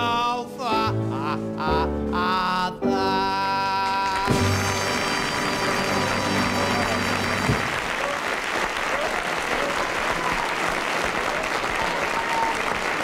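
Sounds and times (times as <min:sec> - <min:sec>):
audience applauding: 0:03.8 - 0:13.0.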